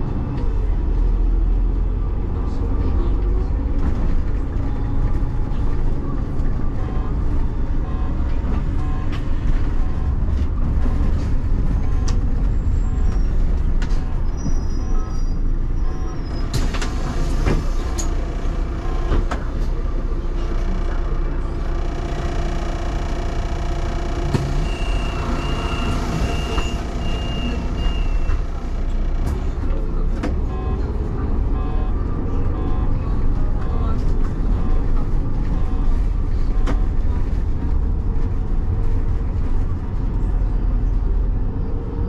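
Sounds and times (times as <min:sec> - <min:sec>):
bus engine running: 0:00.0 - 0:42.0
road noise: 0:00.0 - 0:42.0.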